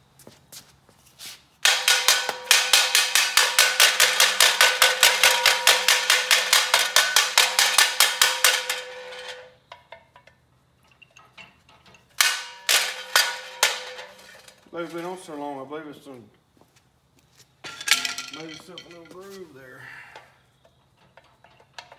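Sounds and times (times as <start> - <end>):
rapid hammer blows on metal: 1.6 - 9.4.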